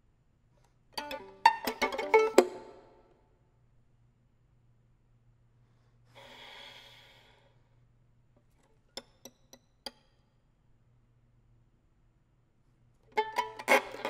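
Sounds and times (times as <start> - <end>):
pizzicato violin notes: 0.9 - 3.0, 13.1 - 14.0
solo violin: 1.0 - 3.0, 13.1 - 14.0
breathy violin hiss: 6.1 - 7.7.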